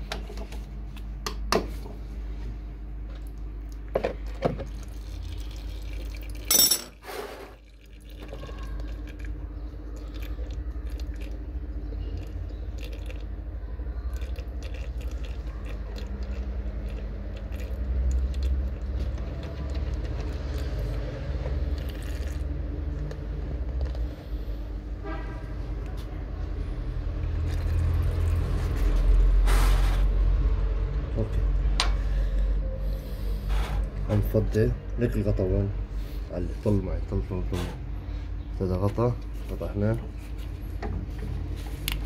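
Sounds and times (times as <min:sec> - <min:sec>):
steady low hum: 0:00.0 - 0:42.0
oil trickling into container: 0:04.6 - 0:06.5, 0:07.5 - 0:24.0, 0:27.2 - 0:29.3.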